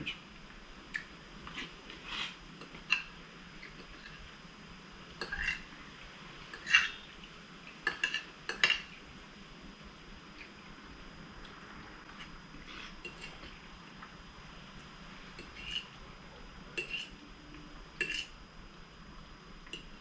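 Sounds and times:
fork clinking on plate: 16.8s - 17.1s.

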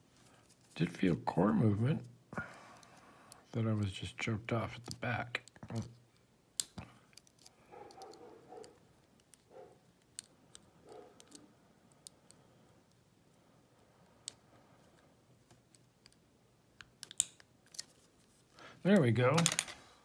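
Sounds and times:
lock pick clicking and scraping: 6.6s - 13.0s, 16.8s - 17.9s.

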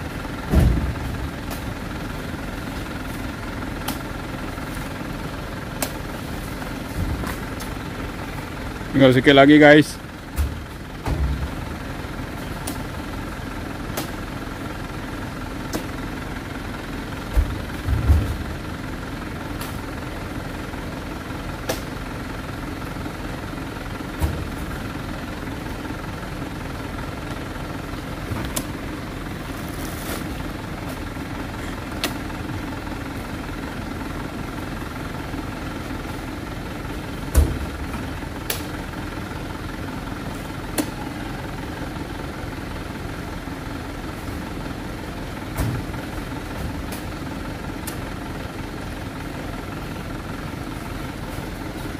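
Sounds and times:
diesel truck engine idling: 0.0s - 51.9s
heavy thuds in truck bed: 0.4s - 1.4s, 10.3s - 11.7s, 17.2s - 18.6s, 37.3s - 38.1s, 45.5s - 46.0s.

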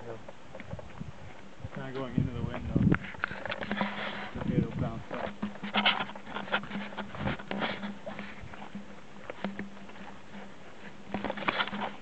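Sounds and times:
footsteps rustling through undergrowth: 0.4s - 12.0s.

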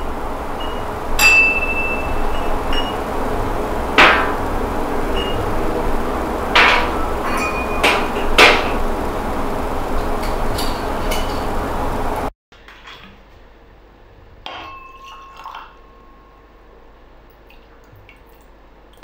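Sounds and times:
loud background hum: 0.0s - 12.3s
sharp knocks: 4.0s - 4.4s, 6.5s - 8.8s
glassware clinking on a counter: 6.6s - 8.6s, 14.5s - 16.4s.

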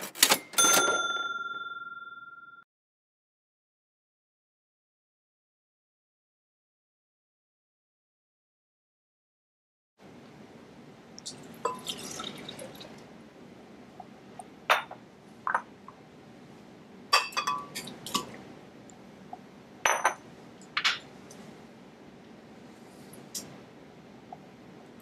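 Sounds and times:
juice pouring into glass jar: 11.3s - 13.0s
glass bowls set on stone counter: 19.8s - 20.2s.

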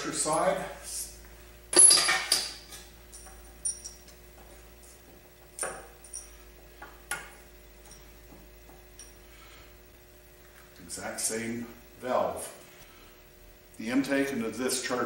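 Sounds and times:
faint steady hum: 0.0s - 15.0s
metal tools clicking and clinking: 1.7s - 4.2s.

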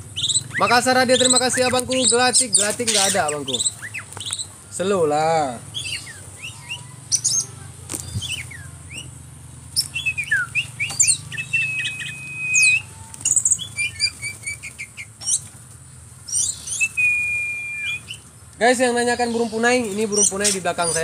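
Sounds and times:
wings fluttering: 0.0s - 4.6s, 5.8s - 9.1s, 9.7s - 18.2s
birds chirping and calling: 0.0s - 21.0s
long held bird whistle: 5.8s - 7.5s, 9.8s - 15.4s, 16.3s - 18.3s.

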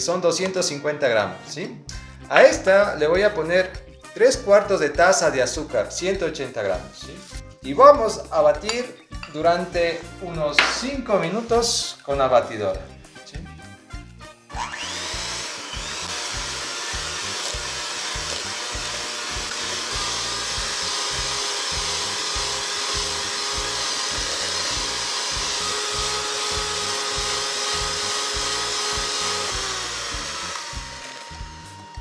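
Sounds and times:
electric hand mixer running: 14.6s - 32.0s.

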